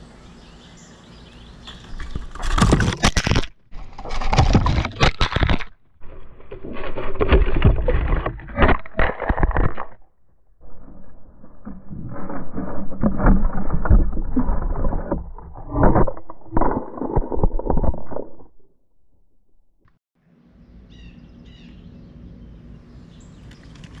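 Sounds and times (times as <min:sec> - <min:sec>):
birdseed rustling and crunching: 0:01.7 - 0:10.0
faint bird chirps: 0:20.6 - 0:23.9.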